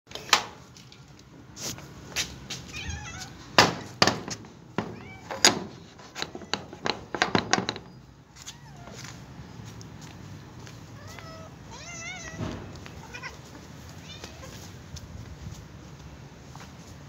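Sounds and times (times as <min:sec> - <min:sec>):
kittens meowing: 0:02.7 - 0:03.4, 0:10.9 - 0:14.7
sharp clicks and knocks: 0:03.6 - 0:08.0.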